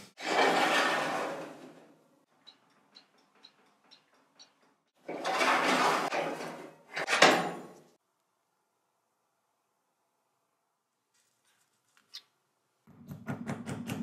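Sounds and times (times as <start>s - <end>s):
wire rack scraping: 0.1s - 2.0s, 3.3s - 8.0s.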